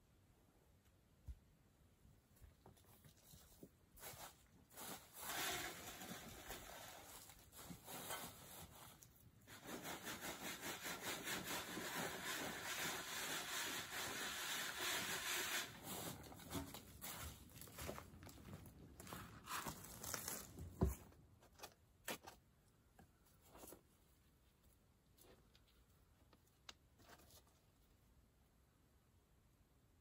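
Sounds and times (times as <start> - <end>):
shovel scraping dirt: 4.8 - 7.0.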